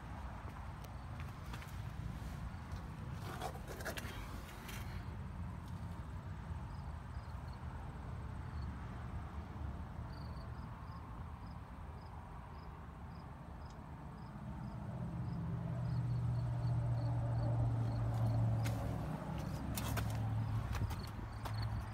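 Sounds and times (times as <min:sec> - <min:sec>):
crickets chirping: 0:06.7 - 0:08.8, 0:10.1 - 0:21.9.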